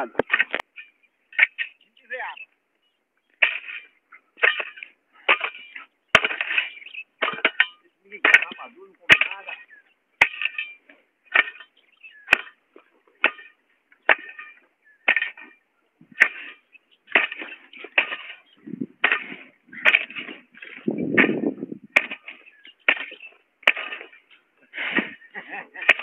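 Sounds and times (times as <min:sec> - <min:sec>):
crunching of dry grass: 0:09.2 - 0:26.0.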